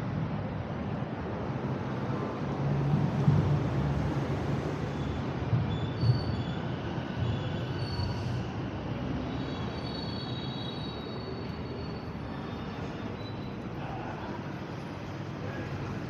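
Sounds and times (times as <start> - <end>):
train rumble: 0.8 - 16.0
train wheels squealing: 4.9 - 14.1.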